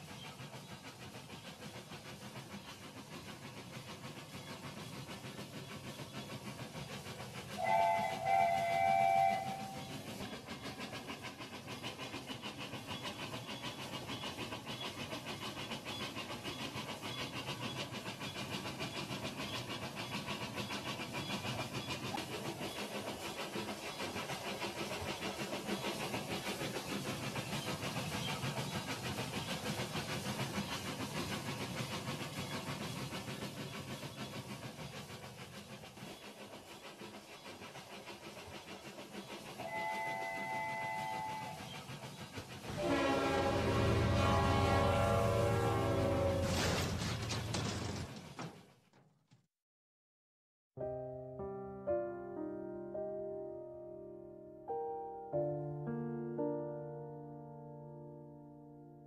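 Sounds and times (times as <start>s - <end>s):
electronic train whistle toots: 7.6s - 10.0s, 39.6s - 41.7s, 42.7s - 46.8s.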